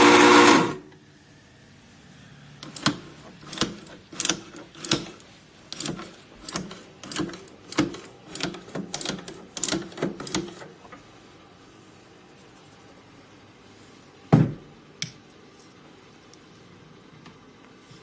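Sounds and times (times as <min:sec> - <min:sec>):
grinder doser lever clacking: 0:02.6 - 0:10.6.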